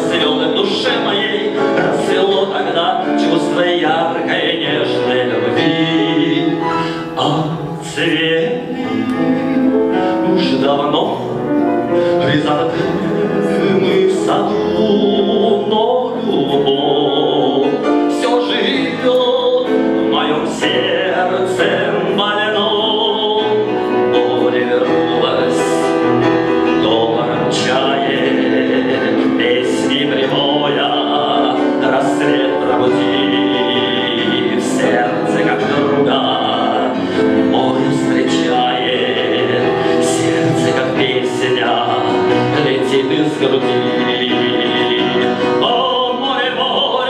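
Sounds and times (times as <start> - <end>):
grand piano: 0.0 - 47.0
man singing into a microphone: 0.0 - 47.0.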